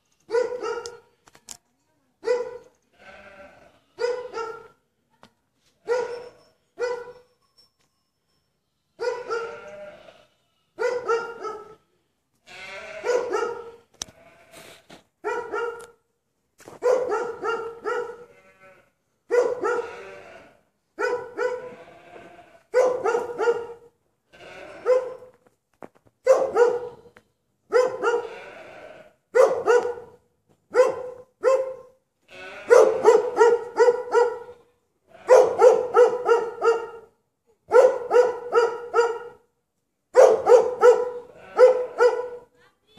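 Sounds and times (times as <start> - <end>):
dog barking: 0.3 - 1.0, 2.2 - 2.7, 4.0 - 4.8, 5.8 - 7.3, 9.0 - 9.7, 10.8 - 11.8, 12.9 - 13.8, 15.2 - 16.0, 16.8 - 18.4, 19.3 - 20.1, 21.0 - 21.8, 22.7 - 23.9, 24.8 - 25.4, 26.2 - 27.1, 27.7 - 28.5, 29.3 - 39.5, 40.2 - 42.5.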